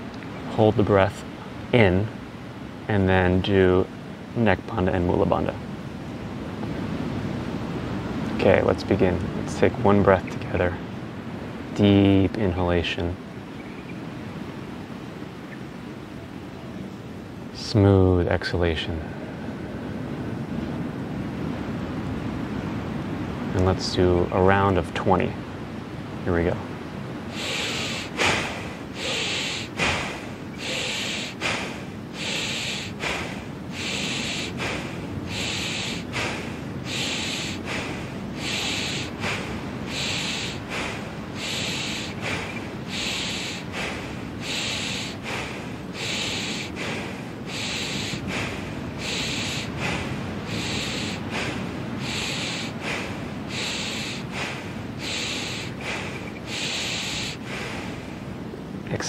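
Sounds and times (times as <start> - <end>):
rapid forceful nose breathing: 27.3 - 58.3.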